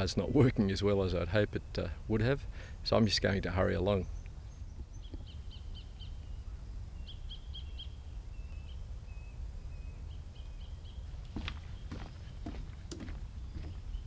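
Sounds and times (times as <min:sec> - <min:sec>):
small bird chirping: 0:04.0 - 0:14.0.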